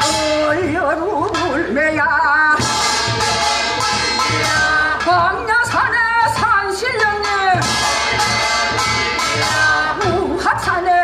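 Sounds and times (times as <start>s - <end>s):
steady drumbeat: 0.0s - 11.0s.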